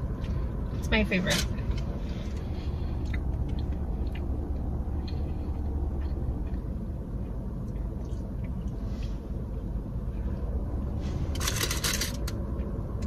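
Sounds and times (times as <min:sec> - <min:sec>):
chewing and handling food: 0:00.0 - 0:10.4
low rumble in car cabin: 0:00.0 - 0:13.0.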